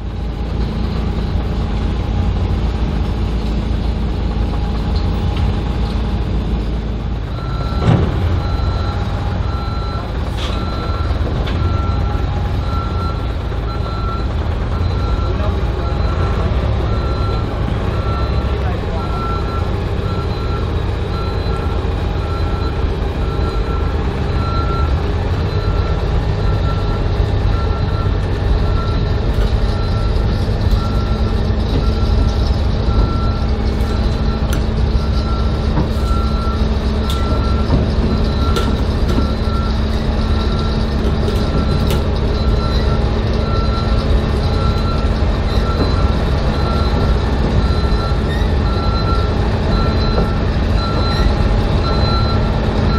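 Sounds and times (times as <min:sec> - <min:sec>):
low engine rumble: 0:00.0 - 0:52.9.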